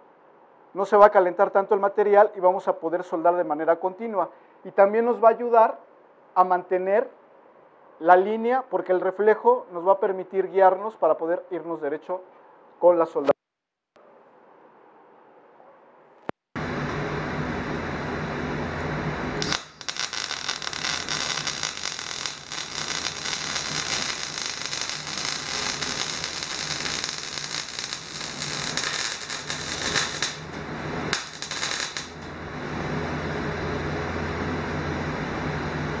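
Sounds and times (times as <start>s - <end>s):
steady welder hum: 16.6s - 36.0s
welding arc crackling: 18.4s - 32.7s.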